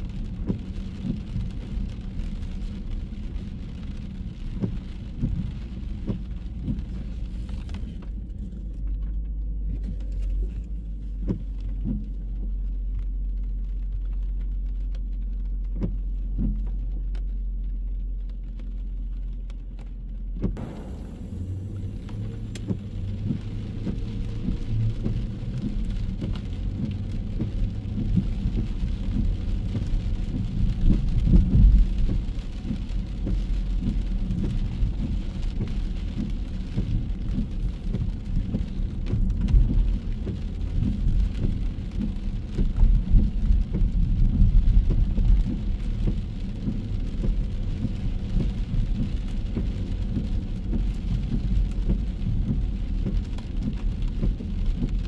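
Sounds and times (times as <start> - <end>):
rain hiss: 0.0 - 8.9, 20.6 - 55.0
uneven low rumble: 0.0 - 55.0.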